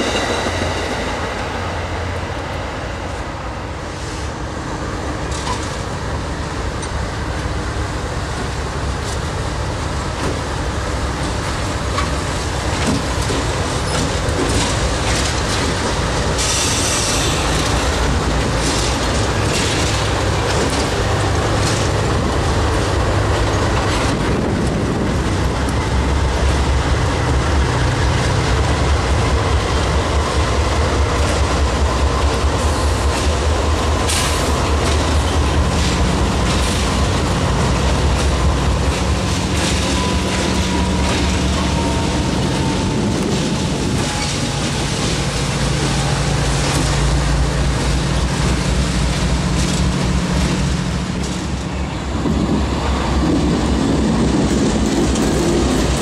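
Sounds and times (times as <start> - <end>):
locomotive engine drone: 0.0 - 56.0
wheels clicking over rail joints: 11.1 - 26.6.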